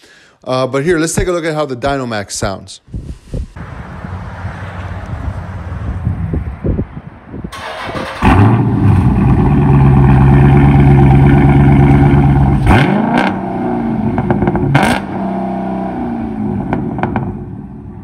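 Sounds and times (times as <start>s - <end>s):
car engine idling and revving: 7.6s - 18.0s.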